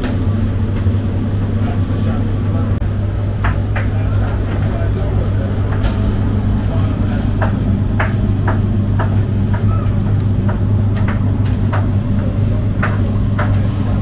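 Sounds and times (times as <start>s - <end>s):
low fan hum: 0.0s - 14.0s
metal skewers clicking on grill: 5.7s - 13.9s.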